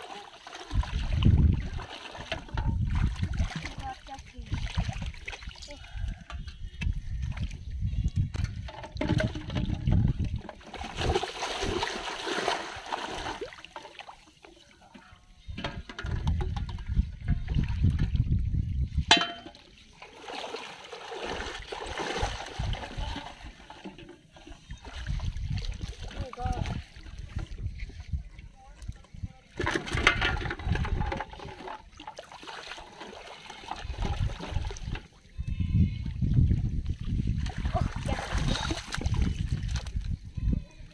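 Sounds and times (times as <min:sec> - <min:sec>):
person wading through water: 0:00.0 - 0:06.2, 0:10.6 - 0:14.8, 0:19.8 - 0:23.8, 0:24.4 - 0:28.1, 0:31.3 - 0:35.2, 0:37.0 - 0:40.1.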